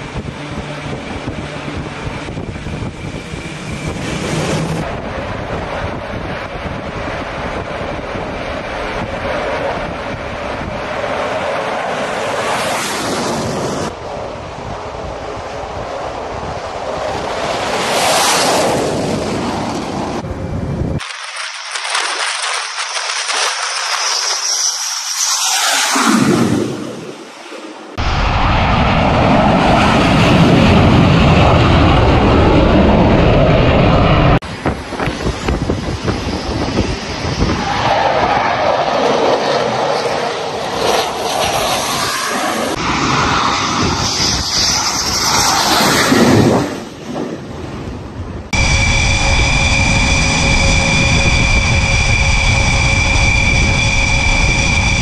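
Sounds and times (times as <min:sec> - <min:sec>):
jet engine roar: 0:00.0 - 0:55.0
wind: 0:00.0 - 0:55.0
rush of jet noise: 0:21.0 - 0:39.6, 0:40.2 - 0:47.2, 0:48.5 - 0:55.0.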